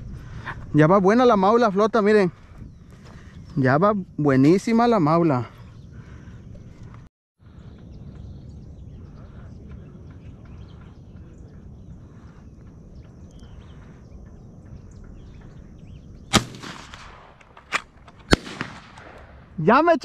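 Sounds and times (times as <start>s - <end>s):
faint chirps: 5.3s - 16.4s
shotgun shot: 16.3s - 19.5s.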